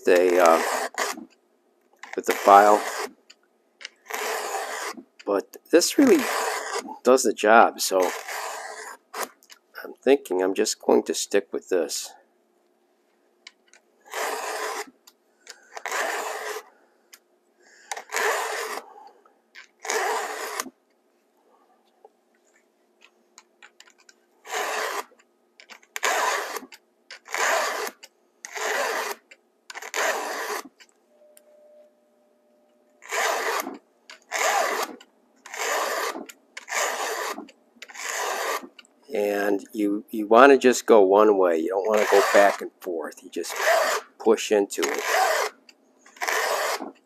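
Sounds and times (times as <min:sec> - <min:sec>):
file rasping across chainsaw cutters: 0:00.0 - 0:01.4, 0:02.0 - 0:03.2, 0:04.1 - 0:05.0, 0:05.8 - 0:07.1, 0:07.9 - 0:09.4, 0:14.1 - 0:14.9, 0:15.5 - 0:16.7, 0:17.9 - 0:19.0, 0:19.6 - 0:20.7, 0:23.9 - 0:25.1, 0:26.0 - 0:29.2, 0:29.8 - 0:30.7, 0:33.0 - 0:38.8, 0:41.8 - 0:42.7, 0:43.4 - 0:47.0.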